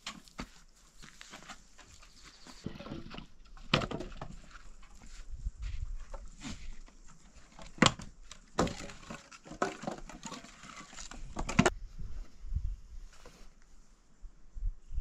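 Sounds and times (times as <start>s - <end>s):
wooden planks knocking and clattering: 2.6s - 5.1s, 6.0s - 11.7s.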